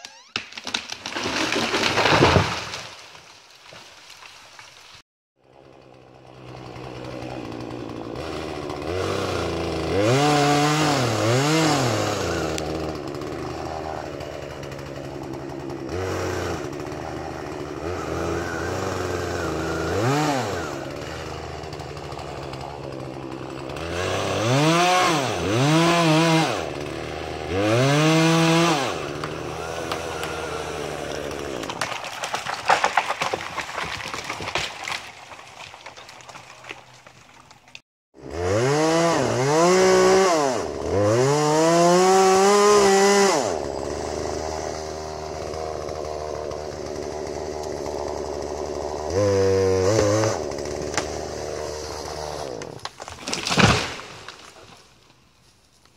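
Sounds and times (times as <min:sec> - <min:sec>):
wood cracking and snapping: 0:00.0 - 0:05.0, 0:06.6 - 0:15.7, 0:16.3 - 0:25.3, 0:28.0 - 0:37.8, 0:44.9 - 0:48.8, 0:49.9 - 0:51.5, 0:52.5 - 0:55.2
chainsaw revving: 0:05.4 - 0:33.2, 0:38.2 - 0:54.8.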